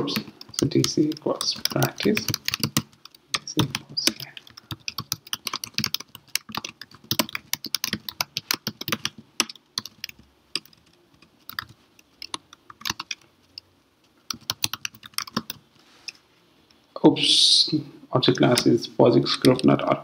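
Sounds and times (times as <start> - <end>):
computer keyboard typing: 0.0 - 15.6.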